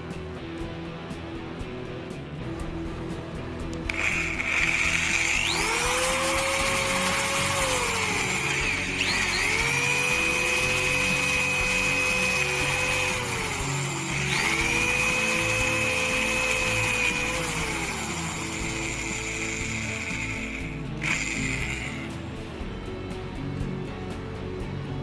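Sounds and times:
background music: 0.0 - 25.0
hole saw cutting metal: 3.9 - 22.3.

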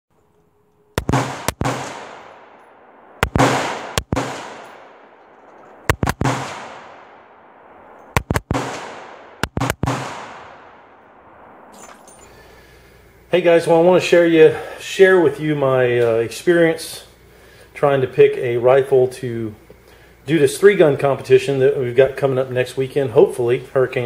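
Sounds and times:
rifle shots with long echo: 1.0 - 13.2.

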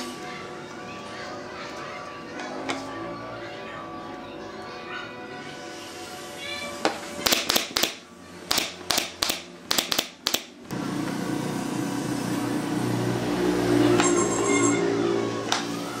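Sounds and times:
background music: 0.0 - 6.5
nail gun shots: 7.2 - 10.5.

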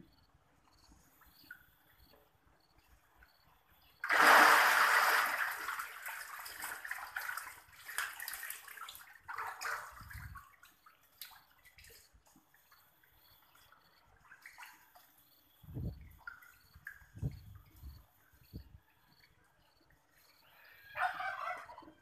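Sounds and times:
water splashing and sloshing: 4.0 - 18.6.

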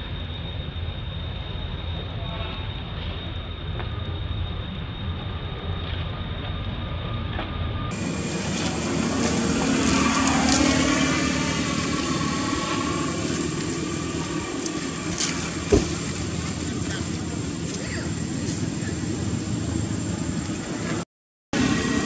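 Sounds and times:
passing vehicle engine rumble: 1.6 - 21.0.

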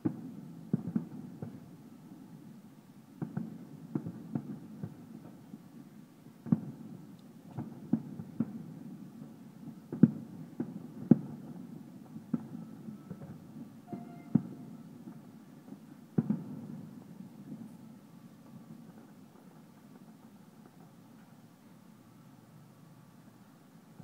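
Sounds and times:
distant firework booms: 16.1 - 17.7.

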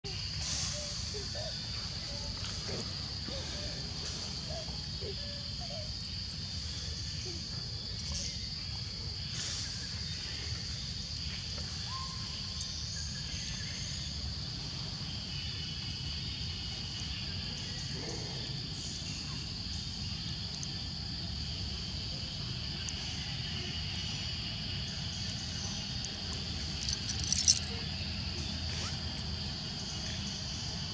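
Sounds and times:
insects droning: 0.0 - 30.9.

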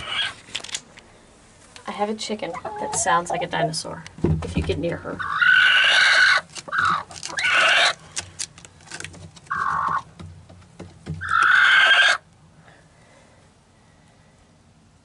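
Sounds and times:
hen screeching: 0.0 - 0.4, 5.2 - 8.0, 9.5 - 10.0, 11.2 - 12.2
straw rustling: 6.2 - 11.4.

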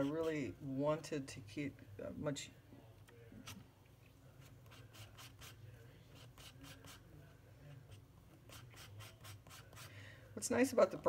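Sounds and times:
palette knife scraping paint: 0.0 - 0.5, 4.4 - 7.0, 7.8 - 9.9.

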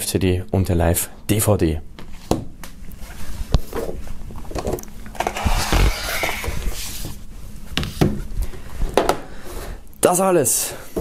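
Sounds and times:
cardboard rustling and scraping: 3.0 - 7.2.

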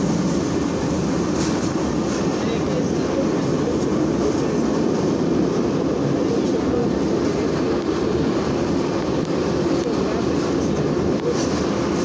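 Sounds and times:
metro train running on rails: 0.0 - 12.0.

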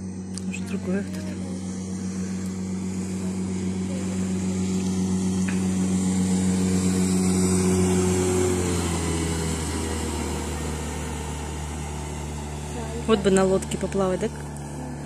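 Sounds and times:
motorboat engine passing: 0.0 - 15.0.

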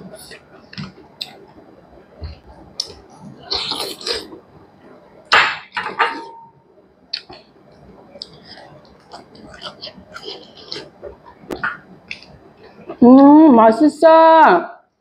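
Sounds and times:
slurping and chewing: 2.8 - 4.4, 8.2 - 13.0.

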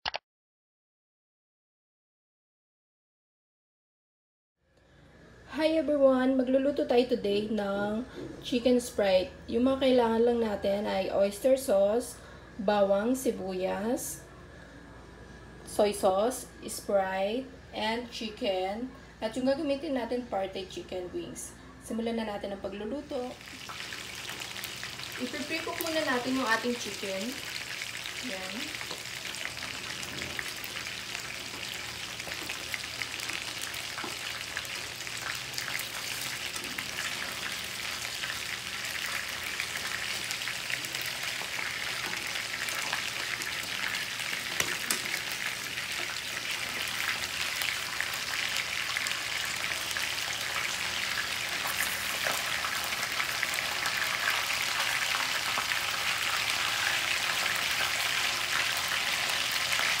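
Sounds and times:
chicken wings sizzling in oil: 23.0 - 60.0
oil popping and crackling: 23.4 - 26.0, 27.5 - 60.0.

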